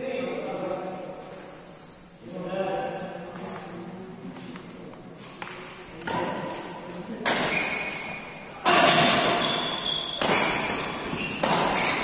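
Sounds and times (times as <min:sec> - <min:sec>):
racket hitting shuttlecock: 0:05.4 - 0:12.0.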